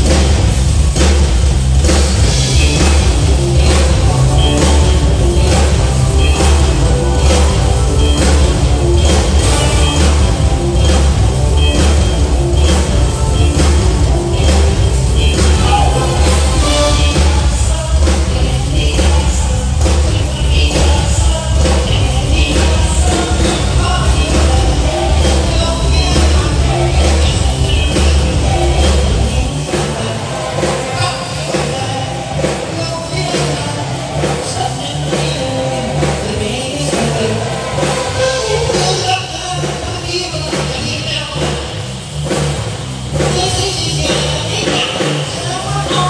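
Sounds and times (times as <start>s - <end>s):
pop-rock music with singing: 0.0s - 46.0s.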